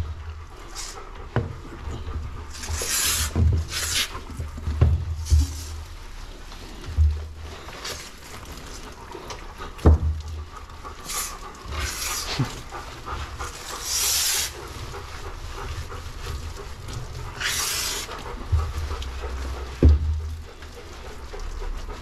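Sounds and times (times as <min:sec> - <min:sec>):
shampoo lathered into wet fur: 0:02.5 - 0:04.3, 0:11.0 - 0:19.8.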